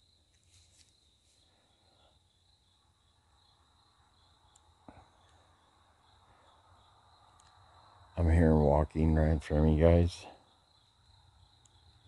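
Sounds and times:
crickets trilling: 0:00.0 - 0:12.0
faint rustle: 0:00.2 - 0:02.4.

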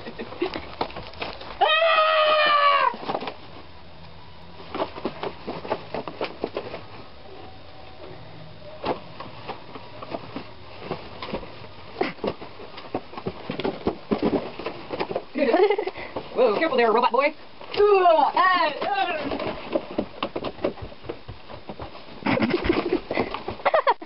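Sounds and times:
knocks and bumps: 0:08.8 - 0:17.0, 0:18.4 - 0:24.0.

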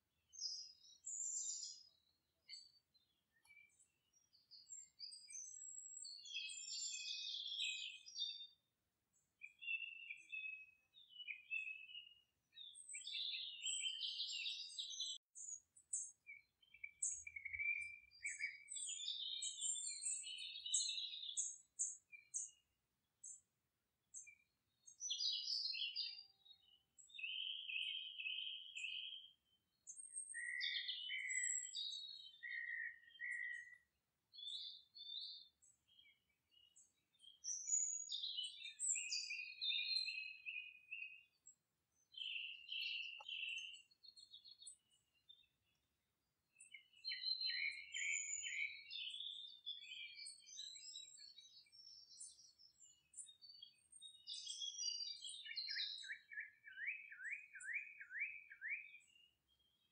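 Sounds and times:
birds chirping and singing: 0:00.3 - 0:08.6, 0:09.4 - 0:22.6, 0:24.1 - 0:45.6, 0:46.6 - 0:59.8.

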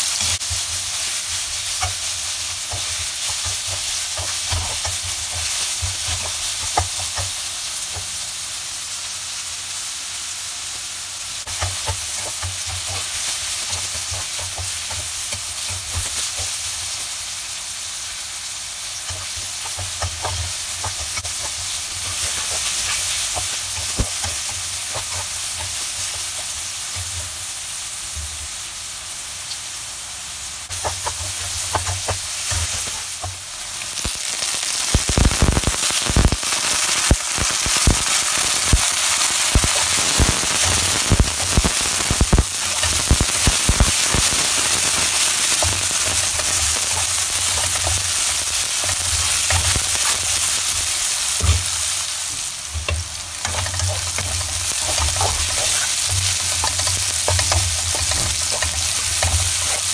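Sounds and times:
cactus pads sizzling in oil: 0:00.0 - 0:59.9
utensil scraping pan: 0:19.0 - 0:27.3, 0:39.5 - 0:59.9.

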